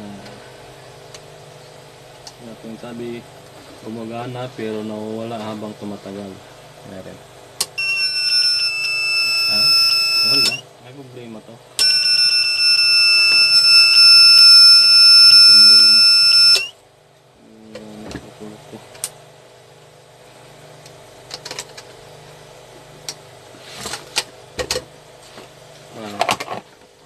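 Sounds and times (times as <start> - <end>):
high-pitched alarm buzzer: 7.8 - 10.6, 11.8 - 16.8.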